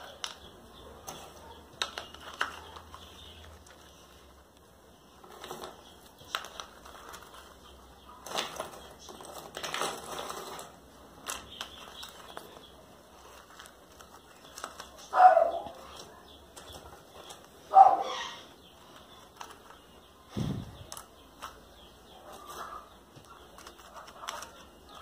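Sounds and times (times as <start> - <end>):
potting substrate rustling and clattering: 5.1 - 15.1.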